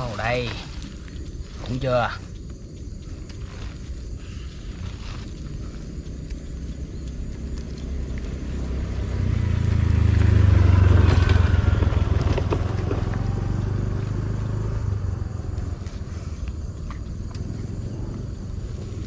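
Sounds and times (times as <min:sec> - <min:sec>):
vehicle engine passing: 0:05.3 - 0:19.0.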